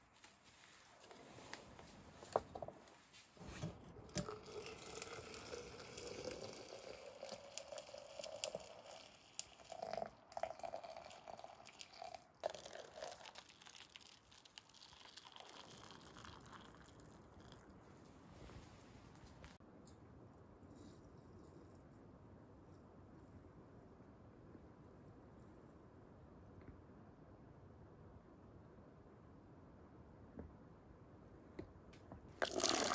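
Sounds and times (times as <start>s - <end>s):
hot water pouring into glass: 4.0s - 17.7s, 32.4s - 32.9s
water pouring into paper cups: 4.0s - 17.8s, 32.4s - 32.9s.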